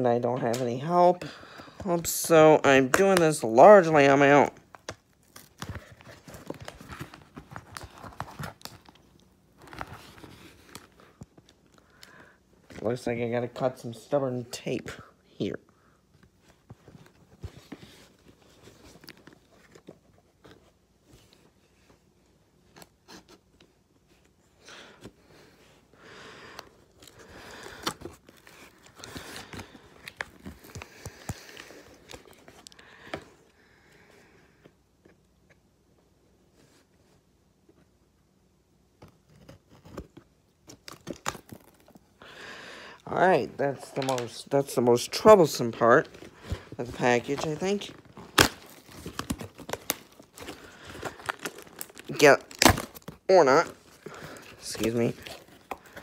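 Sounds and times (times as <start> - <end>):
packing tape cut and torn: 46.4 - 56.0.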